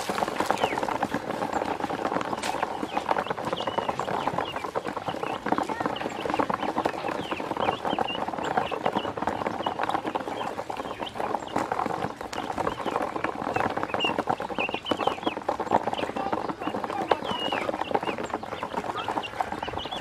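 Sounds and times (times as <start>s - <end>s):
ducklings peeping: 13.8s - 15.4s, 18.9s - 20.0s.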